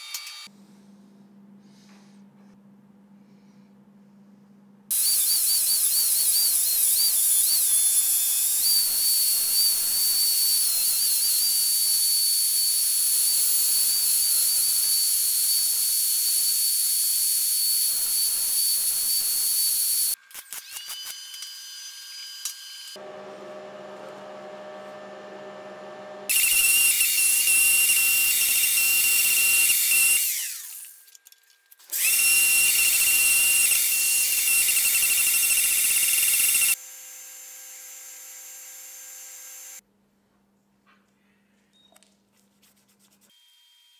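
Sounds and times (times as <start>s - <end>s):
low hum: 23.0s - 26.3s.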